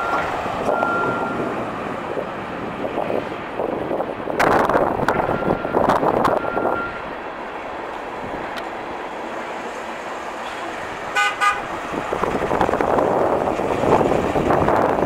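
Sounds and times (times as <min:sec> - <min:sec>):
car horn toots: 0:11.1 - 0:11.7.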